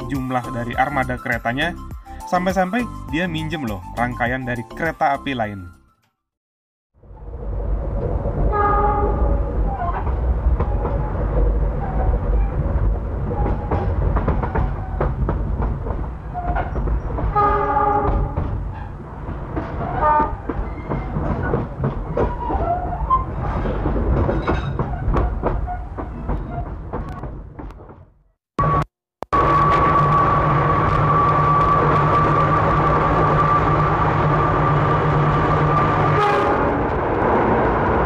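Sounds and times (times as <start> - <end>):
train low rumble: 7.0 - 28.8, 29.4 - 38.0
locomotive horn: 8.5 - 9.5, 17.3 - 18.4, 19.9 - 20.4, 35.8 - 36.9
wheels clicking over rail joints: 9.6 - 28.1.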